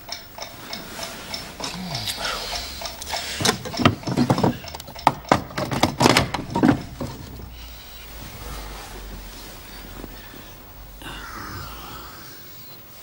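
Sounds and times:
alarm clock mechanical clicks: 0.0s - 6.5s.

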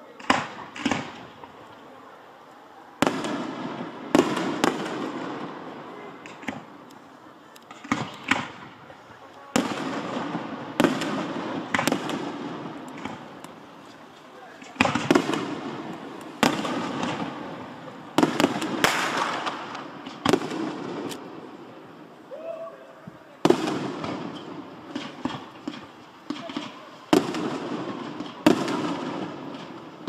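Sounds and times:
firework shells bursting: 9.5s - 21.3s, 23.5s - 30.0s.

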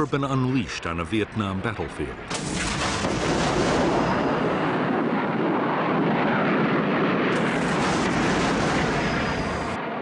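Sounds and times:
aircraft engines roaring: 0.0s - 10.0s.

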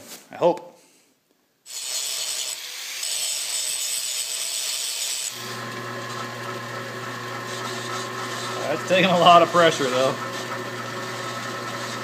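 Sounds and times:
angle grinder grinding steel: 1.7s - 12.0s
drill press motor humming: 5.3s - 12.0s.

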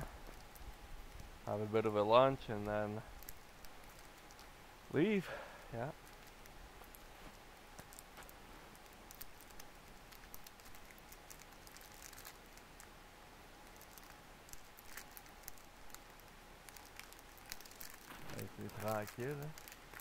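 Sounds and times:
clicks and crinkles near microphone: 2.6s - 4.6s, 6.0s - 12.9s, 13.6s - 20.0s
distant river rapids hiss: 4.3s - 6.0s.

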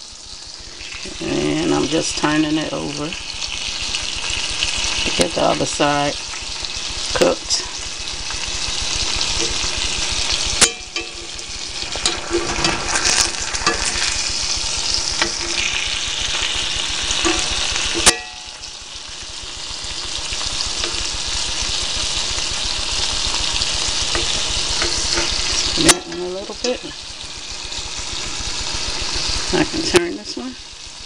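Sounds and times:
fish sizzling in hot oil: 0.0s - 31.0s.

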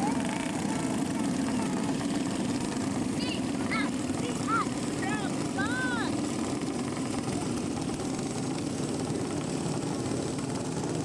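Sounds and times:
kart engines droning: 0.0s - 11.0s.

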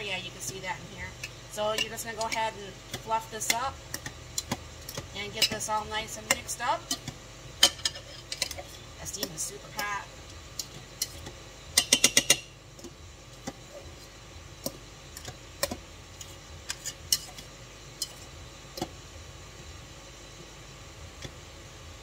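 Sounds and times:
metal utensil scraping a pot: 7.6s - 8.7s, 16.7s - 17.4s.

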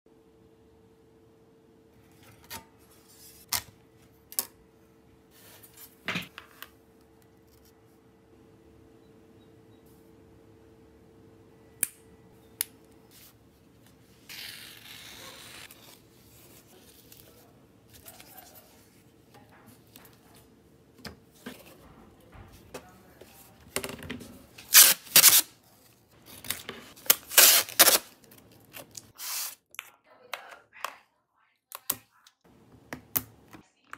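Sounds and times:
packing material crinkling: 26.1s - 29.6s.

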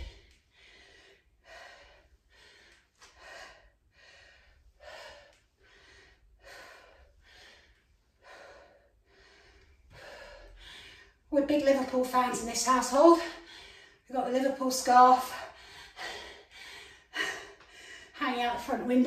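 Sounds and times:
woman breathing hard: 0.0s - 11.3s, 13.2s - 14.1s, 15.3s - 18.2s.

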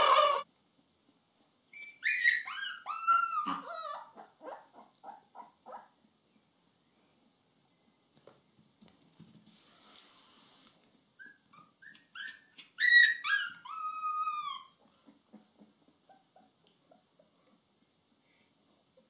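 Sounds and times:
puppy yipping and yelping: 0.0s - 6.1s, 11.2s - 17.5s
puppy howling: 2.0s - 5.8s, 12.2s - 14.7s.

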